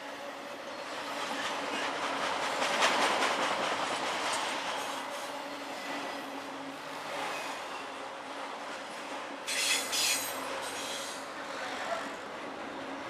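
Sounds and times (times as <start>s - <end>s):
freight train rolling past: 0.0s - 13.0s
wheels clacking over rails: 1.2s - 4.9s.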